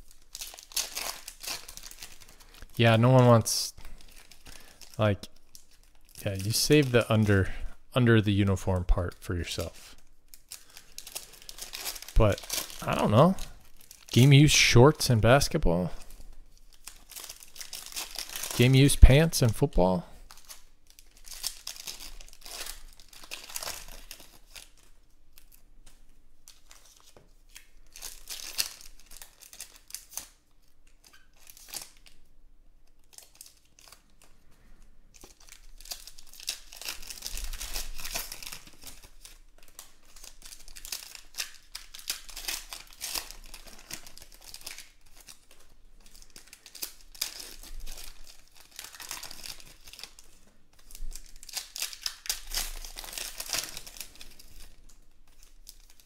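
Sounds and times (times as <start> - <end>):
foil wrappers crinkling and tearing: 0.0 - 7.6, 8.7 - 56.0.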